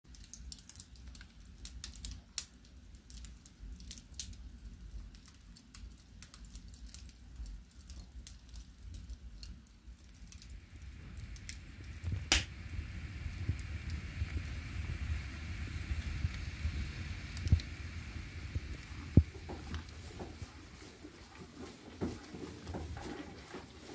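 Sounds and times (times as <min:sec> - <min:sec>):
firewood crackling: 0:00.1 - 0:23.9
low rumble of flames: 0:00.1 - 0:23.9
loud pop: 0:12.1 - 0:12.6.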